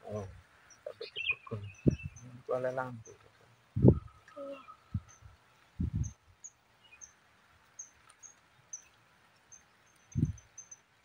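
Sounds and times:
dull low thumps: 0:01.5 - 0:02.2, 0:03.8 - 0:04.1, 0:04.9 - 0:06.2.

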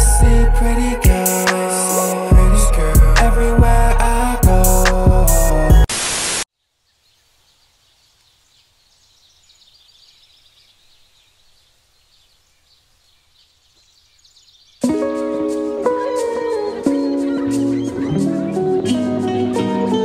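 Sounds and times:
intro music: 0:00.0 - 0:05.9
static-like hiss: 0:05.9 - 0:14.4.

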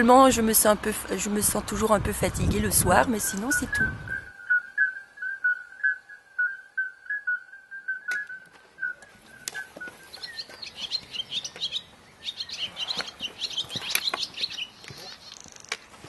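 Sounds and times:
small birds chirping: 0:02.8 - 0:07.4, 0:08.0 - 0:15.9
high steady whistle: 0:03.6 - 0:10.1.

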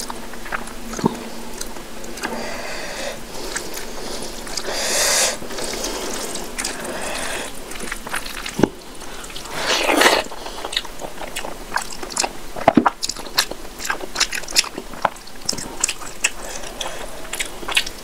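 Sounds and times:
wet mouth clicks chewing: 0:00.0 - 0:02.4, 0:05.6 - 0:08.7, 0:09.3 - 0:18.0
wet squishing of food mashed by hand: 0:05.4 - 0:18.0.

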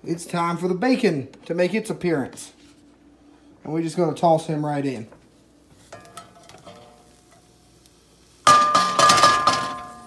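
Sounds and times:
bacon sizzling in skillet: 0:05.3 - 0:10.0.

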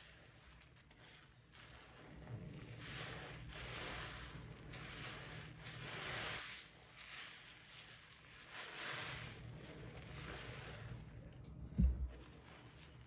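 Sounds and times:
sponge squishing in soapy water: 0:00.0 - 0:13.0.

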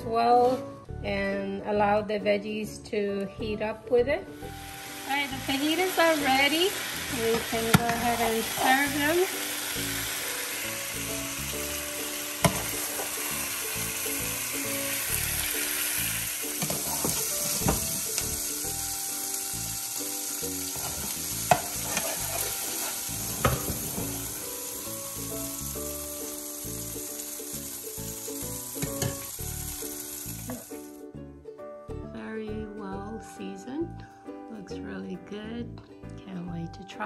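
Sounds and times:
soft background music: 0:00.0 - 0:37.0
meat sizzling in a frying pan: 0:04.3 - 0:31.0.

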